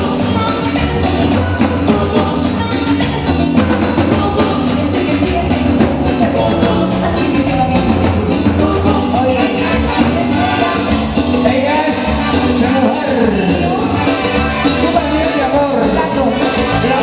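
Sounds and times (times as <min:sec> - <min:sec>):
voices singing: 0:00.0 - 0:13.1
drums and percussion: 0:00.0 - 0:17.0
latin dance band playing: 0:00.0 - 0:17.0.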